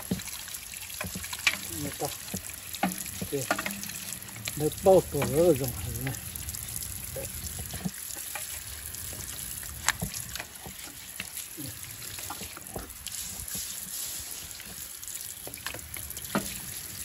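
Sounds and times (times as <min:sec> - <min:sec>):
water splashing and dripping: 0:00.0 - 0:17.0
brush scrubbing a car wheel: 0:10.2 - 0:15.0.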